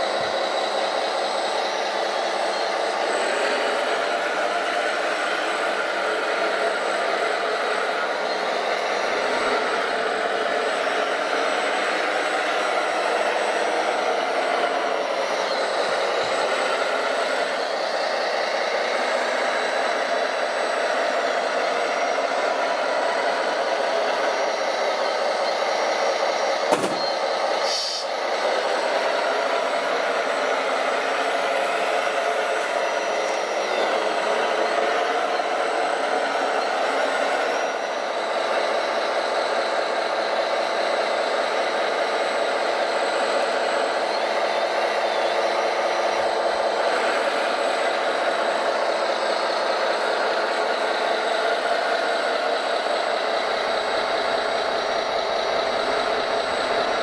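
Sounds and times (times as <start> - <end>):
electric motors whining: 0.0 - 57.0
sharp click: 26.7 - 27.2.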